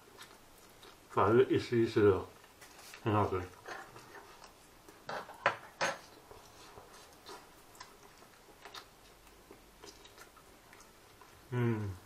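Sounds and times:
cutlery clinking on a plate: 5.1 - 6.1.

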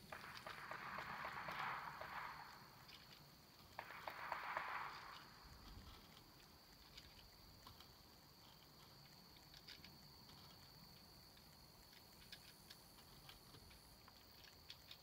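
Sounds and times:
gear clicking on plastic: 5.5 - 15.0.

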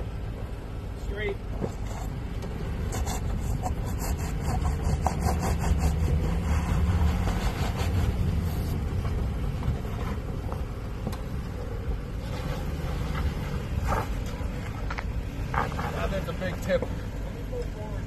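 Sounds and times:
engine running at low revs: 0.0 - 18.0
tyres crunching on loose dirt: 6.0 - 18.0.

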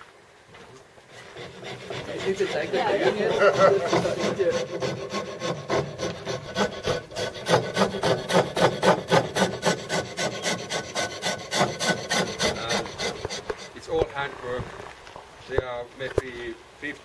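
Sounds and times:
hand file rasping on wood: 1.1 - 14.1.

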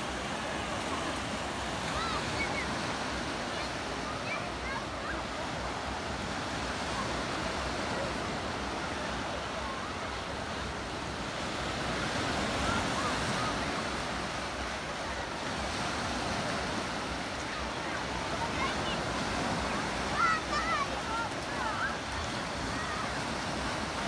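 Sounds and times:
sea waves breaking on beach: 0.0 - 24.0.

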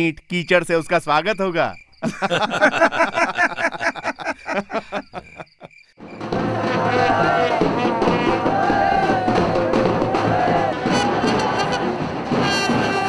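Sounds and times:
man speaking: 0.0 - 1.8
crickets chirping: 0.0 - 6.3
crowd noise: 6.0 - 13.0
brass band playing: 6.2 - 13.0.

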